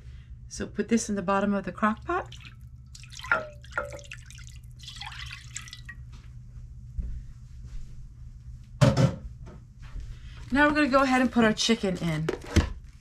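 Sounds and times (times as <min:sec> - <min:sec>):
liquid pouring into crock: 0:01.9 - 0:06.0.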